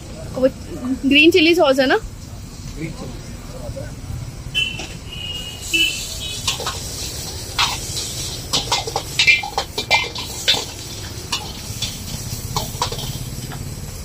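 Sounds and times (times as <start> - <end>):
metal ladle clanging against wok: 6.4 - 13.6.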